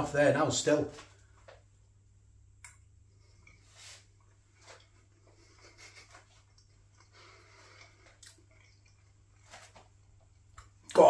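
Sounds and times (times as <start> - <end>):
soft clicks: 2.6 - 2.9
man chewing food: 2.6 - 10.9.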